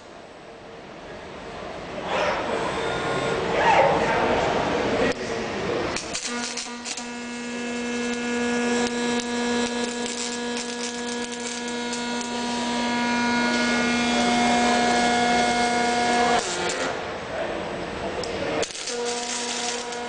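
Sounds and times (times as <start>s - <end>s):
welding arc buzzing and crackling: 5.1s - 17.3s, 18.0s - 20.0s.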